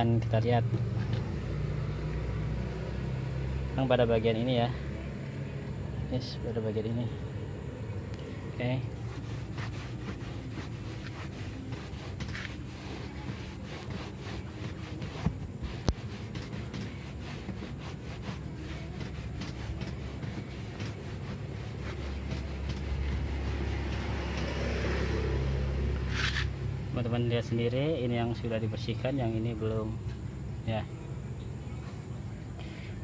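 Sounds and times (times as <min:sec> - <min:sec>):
cloth rubbing on leather seat: 0:08.6 - 0:26.5.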